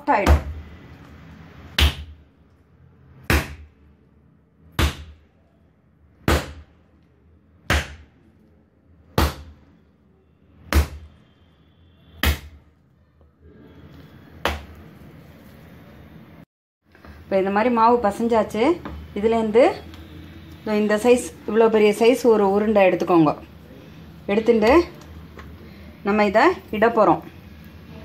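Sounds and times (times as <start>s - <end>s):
dough slapped on work surface: 1.7s - 2.2s, 3.2s - 3.7s, 4.8s - 5.2s, 7.6s - 8.1s, 9.2s - 9.6s, 12.2s - 12.6s, 14.4s - 14.8s.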